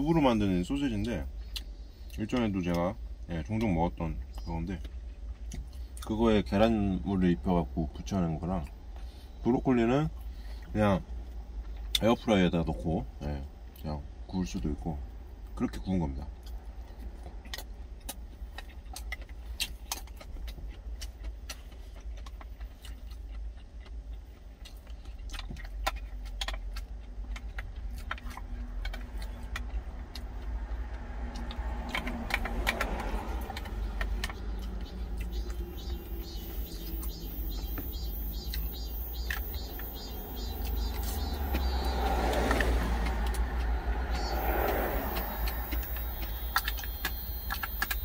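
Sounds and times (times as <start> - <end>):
truck cab rumble: 25.0 - 48.0
passing road traffic: 25.6 - 48.0.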